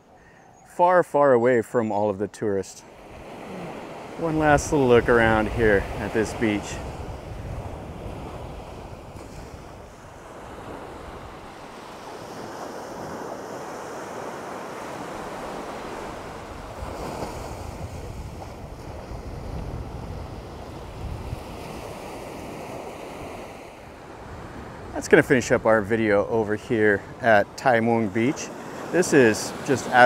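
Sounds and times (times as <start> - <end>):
waves washing onto beach: 2.8 - 30.0
wind buffeting microphone: 4.3 - 13.2, 15.0 - 22.7.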